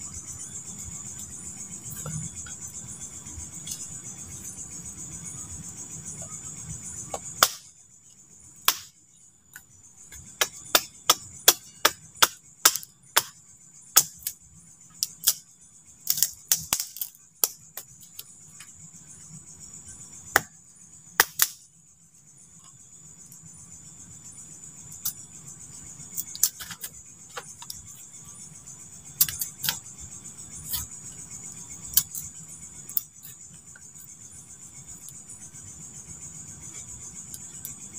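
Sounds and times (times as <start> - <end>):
knife cutting and splitting wood: 7.1 - 7.7, 8.7 - 8.9, 10.1 - 13.3, 16.1 - 18.2, 21.2 - 21.6, 26.1 - 27.8, 29.2 - 29.8, 30.6 - 30.9, 31.8 - 32.3.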